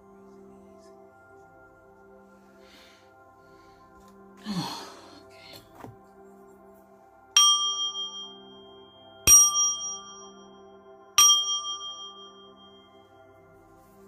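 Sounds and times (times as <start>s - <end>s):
soft background music: 0.0s - 14.0s
small metal bell struck: 7.4s - 10.6s, 11.2s - 13.0s.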